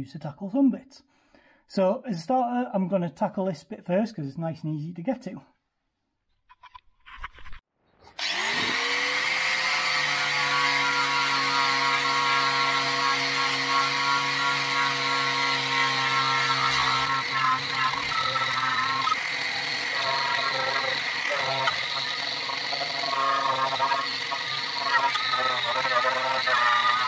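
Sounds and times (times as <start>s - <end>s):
angle grinder stripping metal: 8.2s - 27.0s.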